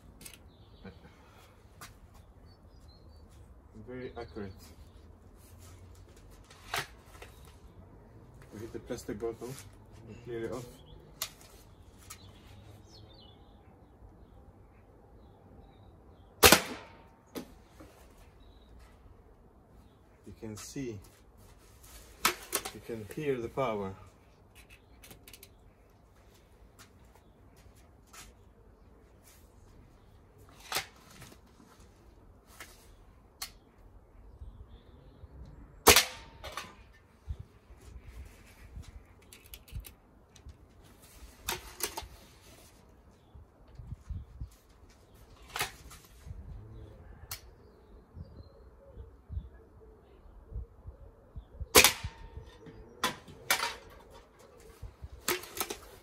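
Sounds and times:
air rifle shot: 16.4s - 17.1s, 35.8s - 36.6s, 51.7s - 52.4s
quieter sharp crack: 16.4s - 17.5s, 35.8s - 36.8s, 51.8s - 53.9s.

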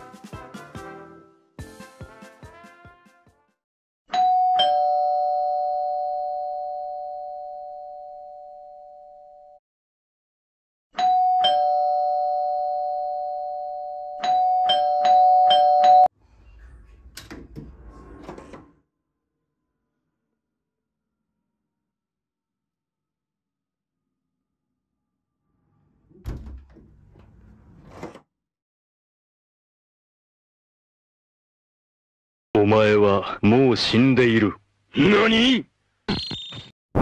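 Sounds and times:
two-tone doorbell chime: 4.1s - 9.3s, 11.0s - 16.1s.

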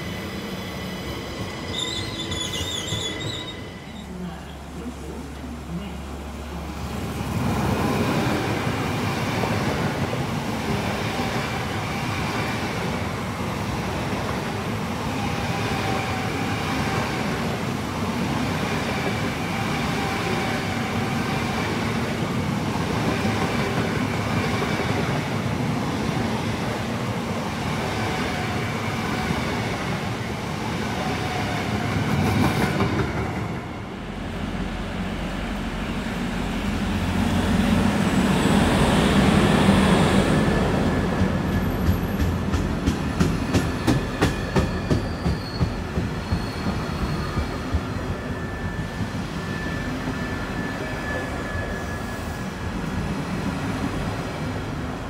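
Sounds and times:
faint train whine: 26.2s - 55.0s
train wheels clacking on rails: 40.5s - 49.3s.

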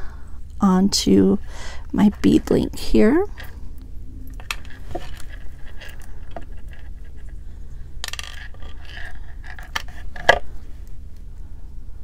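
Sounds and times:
small metal parts clinking: 4.3s - 7.3s, 8.0s - 10.4s.

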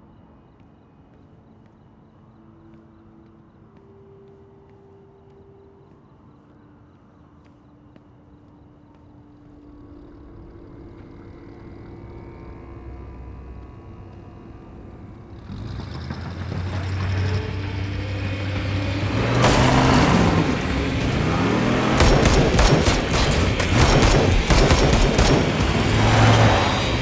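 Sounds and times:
tense film music: 0.0s - 27.0s
truck engine revving: 15.3s - 27.0s
loud cracks and bangs: 22.0s - 26.6s.

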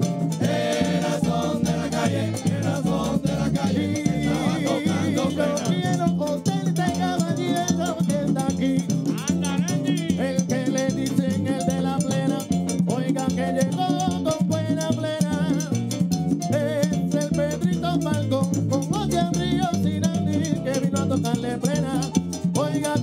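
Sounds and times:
frame drums beating: 0.0s - 23.0s
scraped guiro: 0.0s - 23.0s
men singing into microphones: 0.3s - 15.8s, 16.5s - 23.0s.

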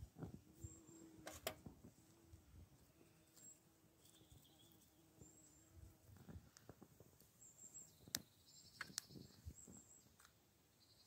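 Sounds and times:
faint bird chirps: 2.9s - 5.8s, 7.4s - 11.0s.

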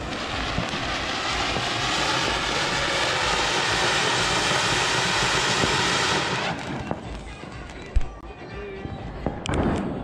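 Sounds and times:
firework fountain hissing: 0.0s - 7.8s.

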